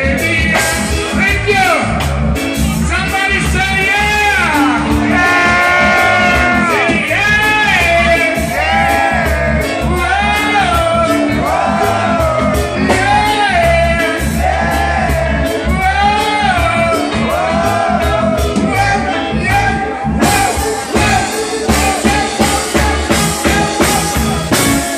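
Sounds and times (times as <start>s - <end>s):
man singing into microphone: 0.0s - 1.9s, 3.0s - 24.9s
live band playing: 0.0s - 24.9s
drum and cymbal hits: 20.2s - 24.9s.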